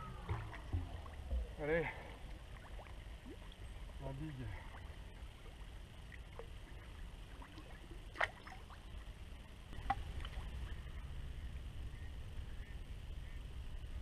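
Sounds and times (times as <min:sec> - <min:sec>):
river water sloshing and splashing: 0:00.0 - 0:09.1, 0:09.7 - 0:11.0
low steady rumble: 0:00.0 - 0:14.0
sharp splashes: 0:07.5 - 0:08.8.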